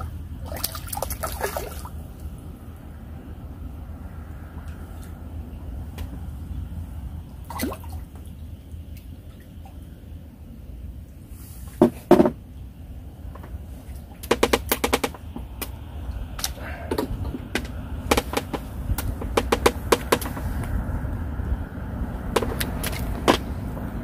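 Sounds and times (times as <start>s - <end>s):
loud knocks: 11.8s - 12.4s, 14.2s - 15.3s, 17.0s - 20.5s, 22.4s - 23.5s
fishing tackle clicks and rattles: 22.4s - 23.5s.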